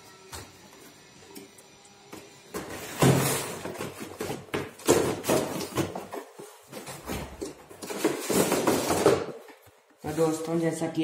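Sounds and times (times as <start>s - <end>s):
cardboard scraping and rustling: 2.6s - 10.6s.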